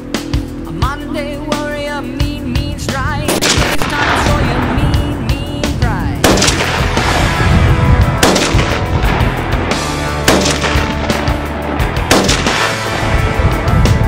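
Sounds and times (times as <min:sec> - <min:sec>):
background music: 0:00.0 - 0:14.0
rifle shots: 0:03.3 - 0:04.8, 0:06.2 - 0:07.5, 0:08.2 - 0:09.4, 0:10.2 - 0:13.2.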